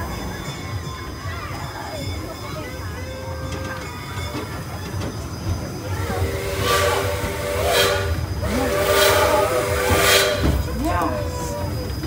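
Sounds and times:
train whistle blast: 6.2s - 10.7s.

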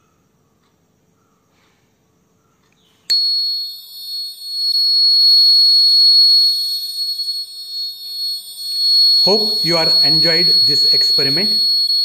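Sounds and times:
high-pitched buzzer tone: 3.1s - 12.0s.

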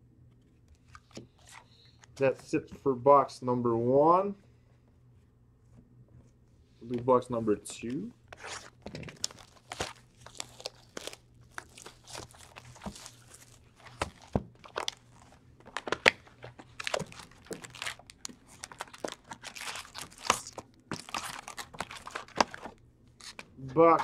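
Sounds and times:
packaging crinkling and tearing: 8.4s - 23.5s.

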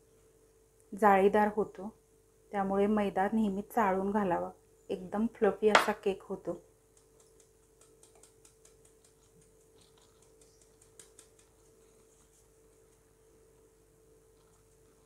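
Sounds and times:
flour sieve ticking: 6.8s - 11.9s.

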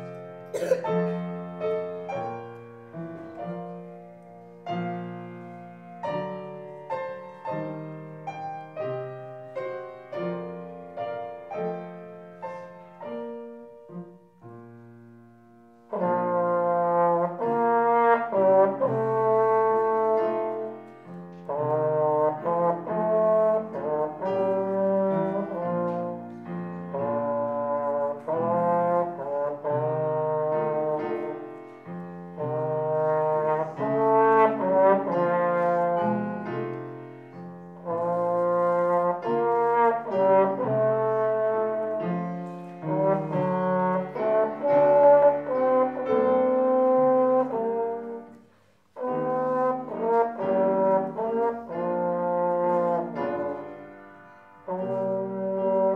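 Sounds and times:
slide trombone solo melody: 0.0s - 2.4s, 15.8s - 20.8s, 21.4s - 31.7s, 32.3s - 36.7s, 37.6s - 54.0s, 54.6s - 55.9s
piano accompaniment: 0.0s - 55.9s.

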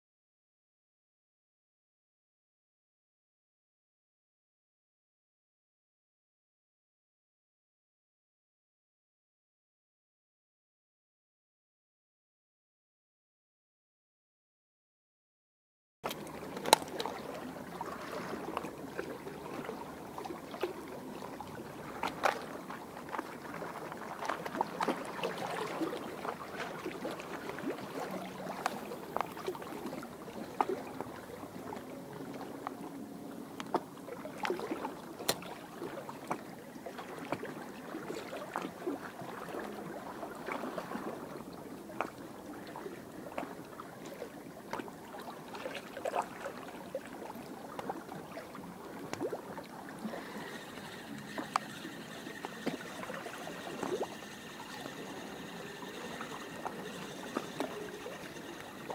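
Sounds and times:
small waves lapping on shore: 16.1s - 58.9s.

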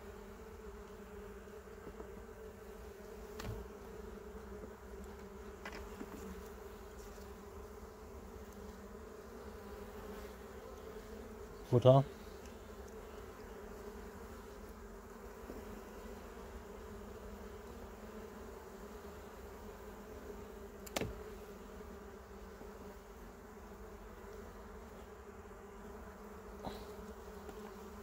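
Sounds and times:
bees humming: 0.0s - 28.0s.

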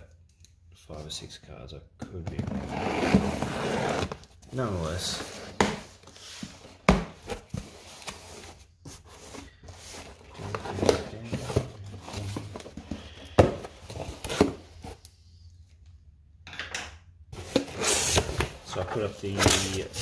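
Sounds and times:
cardboard rustling: 2.5s - 15.1s, 17.4s - 20.0s.

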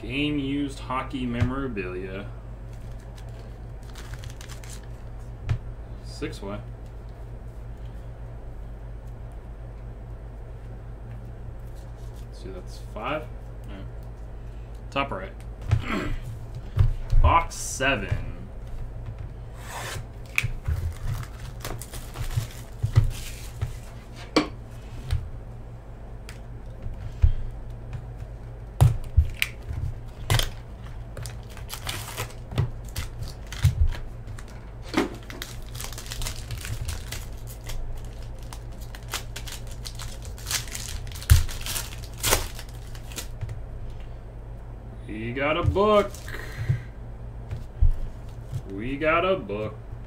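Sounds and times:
foil wrapper crinkling and tearing: 2.7s - 5.1s, 20.2s - 23.6s, 29.2s - 30.6s, 31.2s - 34.6s, 35.2s - 43.4s.

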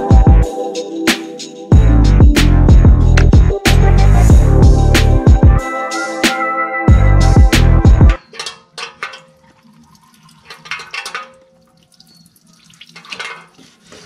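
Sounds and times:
background music: 0.0s - 8.2s
fluid draining into pan: 8.8s - 13.6s.

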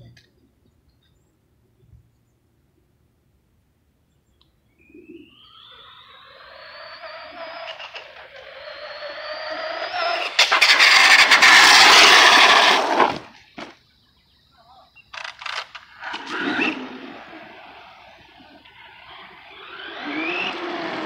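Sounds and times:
electric motor whine: 5.4s - 13.3s, 15.4s - 21.0s
rough rushing noise with clicks: 7.0s - 13.7s, 15.1s - 21.0s.

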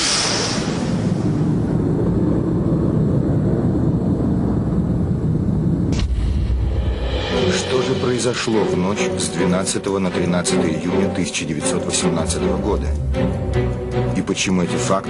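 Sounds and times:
sharp hit: 0.0s - 1.6s, 5.9s - 9.8s
whoosh: 0.0s - 3.5s, 5.8s - 9.0s
dense low rumble: 0.0s - 15.0s
deep boom: 5.7s - 9.8s.

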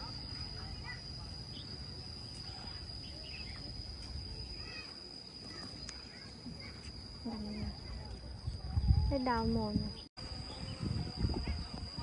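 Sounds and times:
high-pitched insect drone: 0.0s - 12.0s
faint bird chirps: 0.1s - 3.8s.

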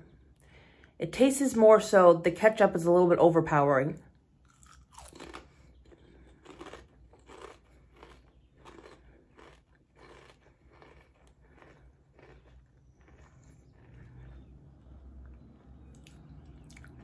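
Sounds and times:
person chewing potato chip: 4.4s - 17.0s.

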